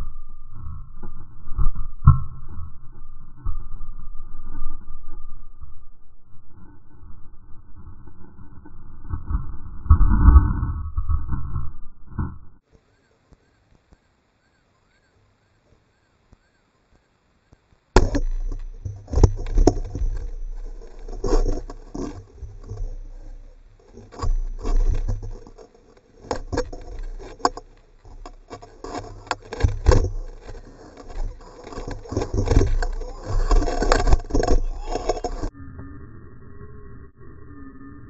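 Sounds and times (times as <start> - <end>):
rattling and knocking: 18.0 - 35.5.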